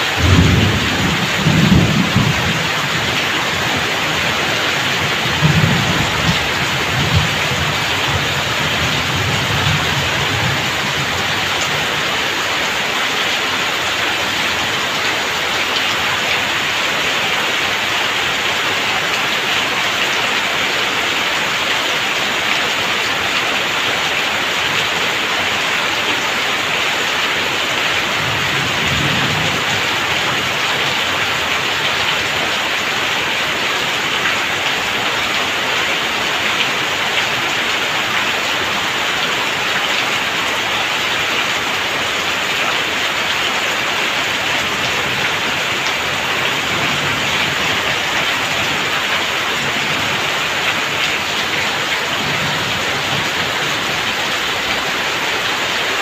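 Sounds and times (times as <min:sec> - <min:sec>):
heavy rain on a tiled roof: 0:00.0 - 0:56.0
distant thunder rumble: 0:00.1 - 0:11.6.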